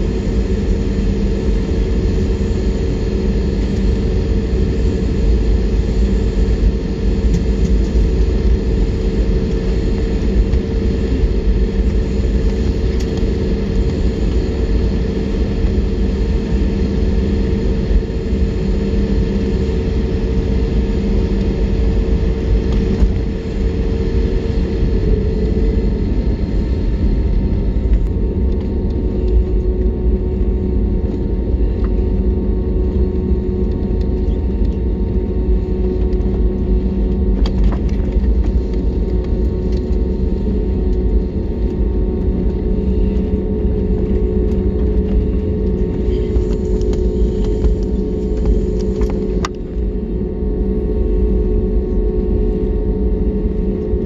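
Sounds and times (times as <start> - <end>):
jet engines low rumble: 0.0 - 54.0
steady cabin hum: 0.0 - 54.0.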